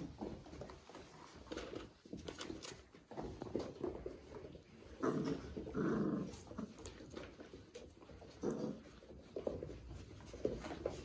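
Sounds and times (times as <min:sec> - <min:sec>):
puppies play-growling: 0:00.0 - 0:11.0
light scuffling: 0:06.5 - 0:11.0.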